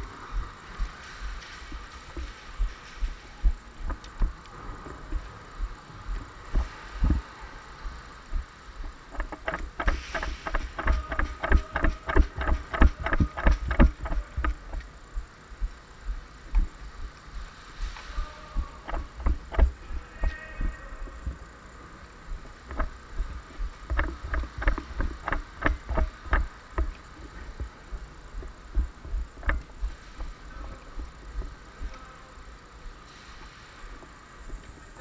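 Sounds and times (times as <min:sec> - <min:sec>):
footsteps and gear bumps: 0:00.8 - 0:07.2, 0:08.3 - 0:16.8, 0:18.8 - 0:21.4, 0:22.3 - 0:30.4, 0:31.0 - 0:32.0
rapid sharp cracks: 0:08.8 - 0:15.0, 0:18.8 - 0:19.9, 0:22.4 - 0:27.7.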